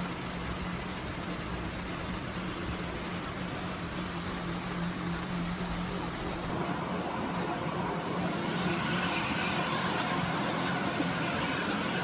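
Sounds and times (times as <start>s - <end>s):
floodwater rushing against vehicle: 0.0s - 6.5s
van engine running: 0.0s - 6.5s.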